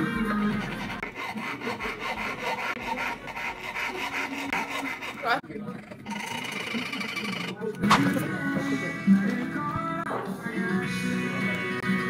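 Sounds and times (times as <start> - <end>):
hand file rasping on metal: 0.0 - 7.7.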